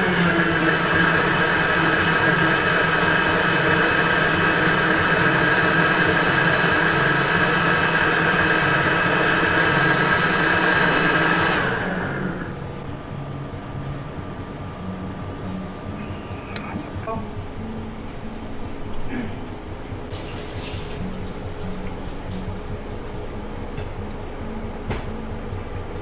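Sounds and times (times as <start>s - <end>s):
blender motor whining: 0.0s - 12.6s.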